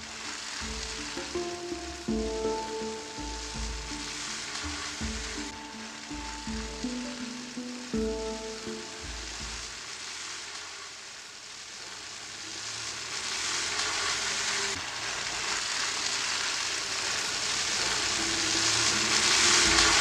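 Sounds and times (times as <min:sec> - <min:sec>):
faint held low tones: 0:00.0 - 0:09.9
steady hiss: 0:00.0 - 0:20.0.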